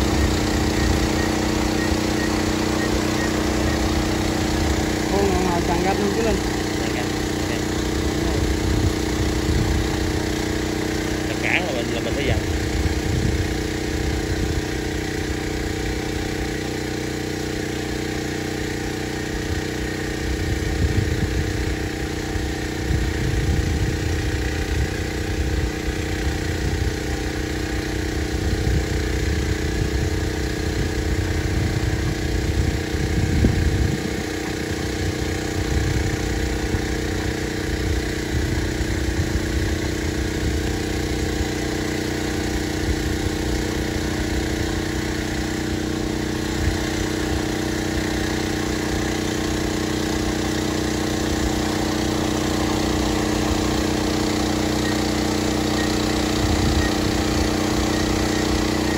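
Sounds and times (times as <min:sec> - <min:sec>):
drone rotors humming: 0:00.0 - 0:58.9
wind buffeting microphone: 0:08.3 - 0:10.2, 0:30.8 - 0:34.4.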